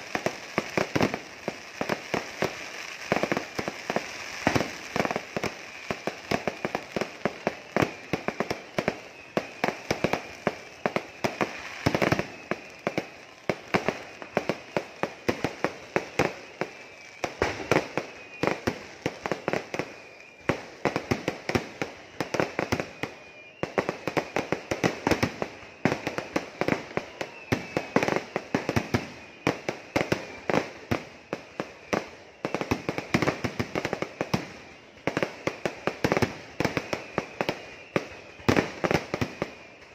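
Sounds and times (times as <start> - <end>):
fireworks bangs and cracks: 0.0 - 39.9
high fireworks whistles: 0.0 - 39.9.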